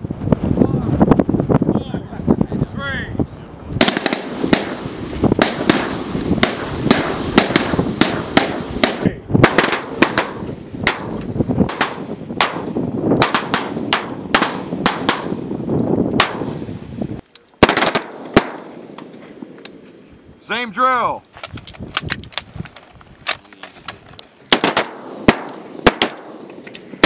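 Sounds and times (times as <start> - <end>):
rifle shots echoing: 3.8 - 15.5, 16.2 - 16.7, 17.6 - 19.2, 24.5 - 27.0.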